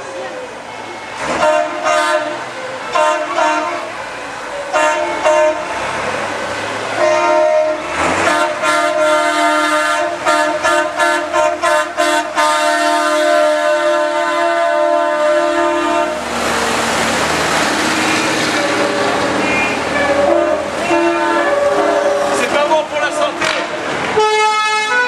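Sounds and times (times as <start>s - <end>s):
truck air horn blasts: 1.2s - 3.9s, 4.7s - 5.8s, 7.0s - 16.2s, 18.0s - 22.5s, 24.2s - 25.0s.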